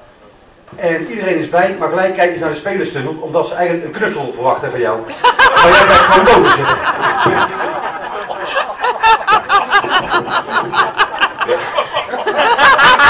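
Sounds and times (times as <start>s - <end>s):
man laughing: 5.1s - 13.0s.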